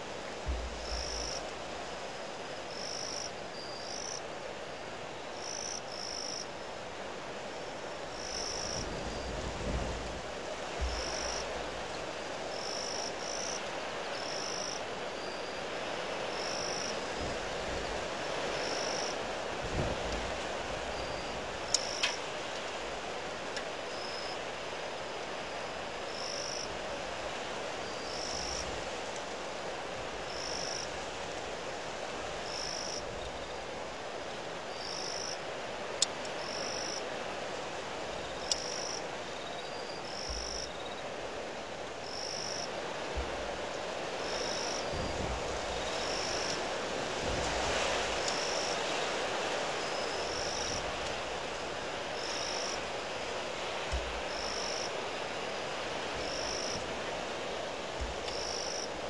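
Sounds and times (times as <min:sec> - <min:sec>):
strong wind across microphone: 0:00.0 - 0:02.7, 0:08.0 - 0:13.1, 0:15.7 - 0:23.5, 0:42.6 - 0:59.0.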